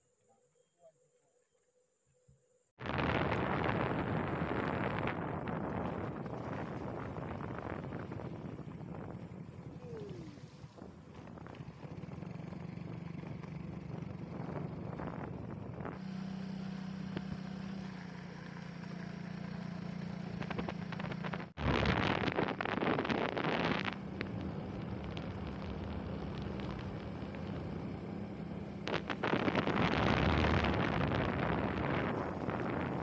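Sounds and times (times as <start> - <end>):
wind noise on microphone: 2.8 - 16.1, 20.4 - 33.0
motorcycle engine running: 10.8 - 33.0.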